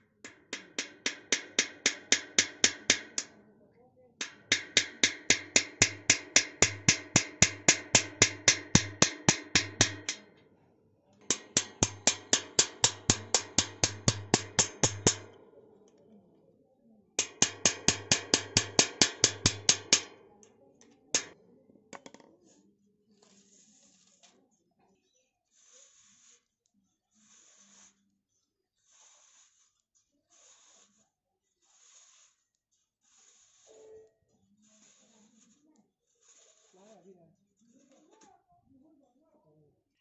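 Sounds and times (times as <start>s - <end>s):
hammer striking steel punch: 0.2s - 3.4s, 4.2s - 10.4s, 11.3s - 15.5s, 17.2s - 20.3s, 21.2s - 21.4s.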